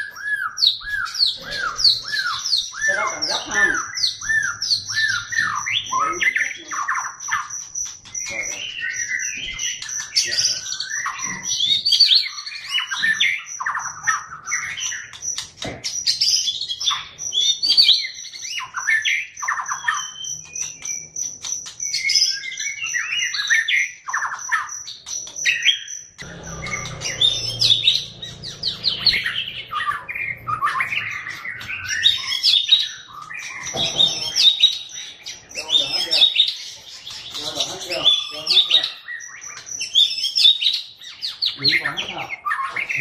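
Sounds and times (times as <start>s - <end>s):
songbird singing: 0.0s - 43.0s
high even pulsing: 26.2s - 31.5s.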